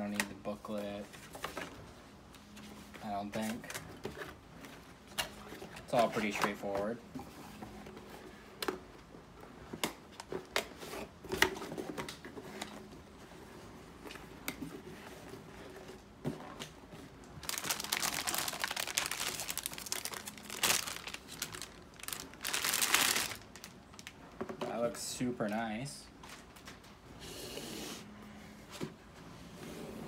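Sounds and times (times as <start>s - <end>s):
plastic bag crinkling: 17.3s - 24.2s.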